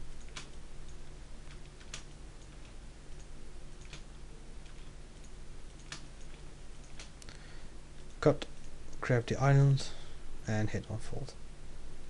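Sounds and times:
low steady hum: 0.0s - 12.0s
computer mouse clicking: 0.1s - 7.3s.

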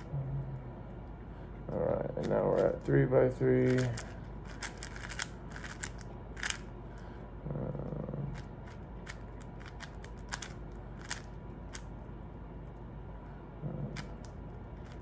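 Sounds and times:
speed cube layers clicking: 3.7s - 6.6s, 9.1s - 11.8s.

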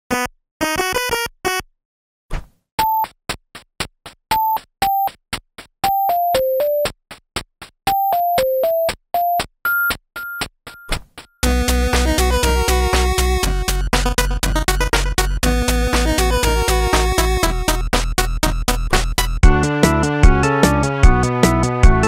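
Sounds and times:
ticking beat: 4.3s - 10.8s, 11.4s - 22.0s
chiptune ringtone melody: 5.8s - 6.9s, 7.9s - 10.4s, 11.4s - 17.8s.

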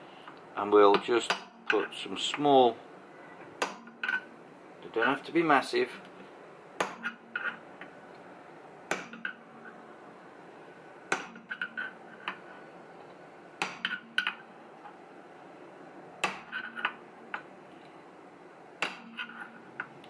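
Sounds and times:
hammer striking metal punch: 8.9s - 9.3s.

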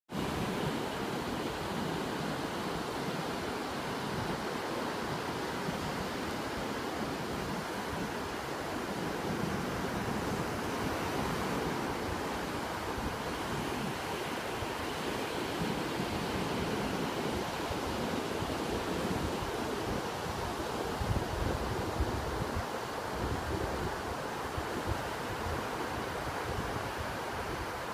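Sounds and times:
ocean waves breaking on beach: 0.1s - 27.9s
wind: 0.1s - 27.9s.

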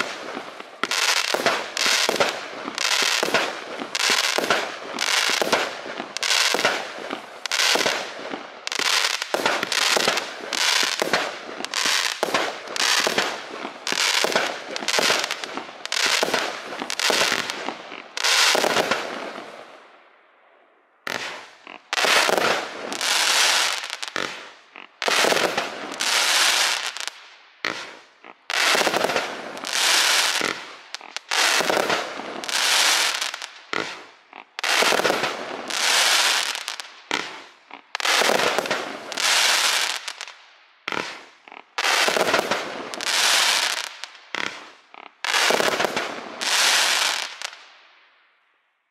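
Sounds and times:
firework cake firing rapid shots: 0.0s - 17.8s, 27.6s - 40.3s, 40.9s - 47.4s
crackling firework bursts: 0.0s - 20.0s, 21.0s - 48.4s.

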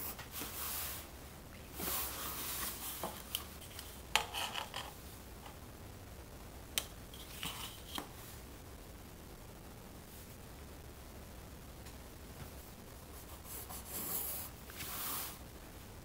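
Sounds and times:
pencil scratching on paper: 13.2s - 15.0s.

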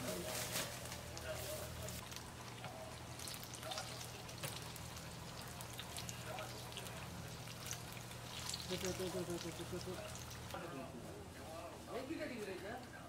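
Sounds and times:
low steady hum: 0.0s - 13.0s
deep-frying sizzle with pops: 1.9s - 10.6s.

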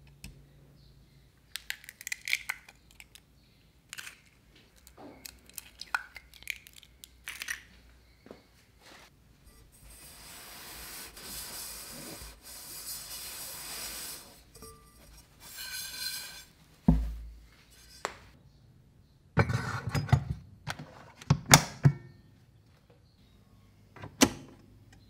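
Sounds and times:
cloth rubbing metal pot: 9.5s - 16.6s.

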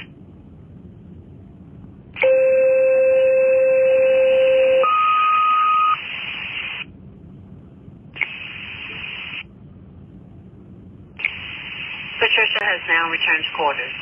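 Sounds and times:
radio static hiss: 5.2s - 6.9s, 8.2s - 9.5s, 11.2s - 14.0s.

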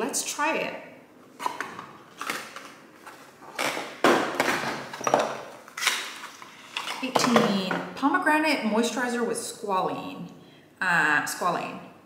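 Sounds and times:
packaging scraping and rustling: 1.3s - 7.1s.

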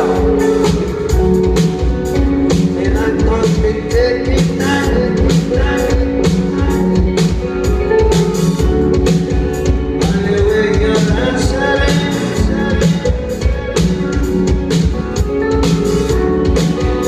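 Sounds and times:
man singing: 0.0s - 7.5s, 9.7s - 13.9s
drum kit beat: 0.0s - 17.0s
electric guitars: 0.0s - 17.0s.

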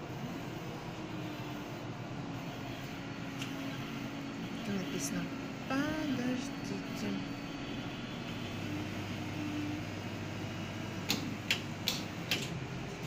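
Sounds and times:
vending machine humming: 0.0s - 13.0s
sharp clicks: 11.0s - 12.6s.

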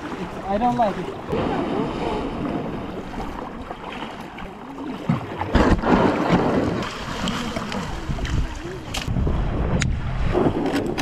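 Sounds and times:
water washing and splashing: 0.0s - 11.0s
wind buffeting microphone: 5.0s - 11.0s.

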